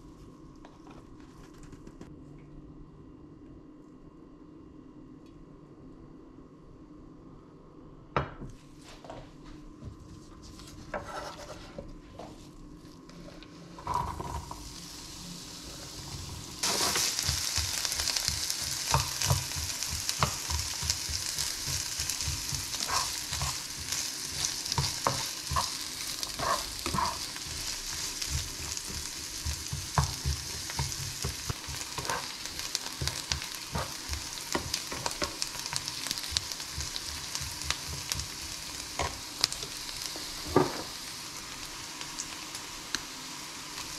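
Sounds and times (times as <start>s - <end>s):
spatula scraping a pan: 10.8s - 11.8s, 18.6s - 35.8s
onion sizzling in hot oil: 13.8s - 43.9s.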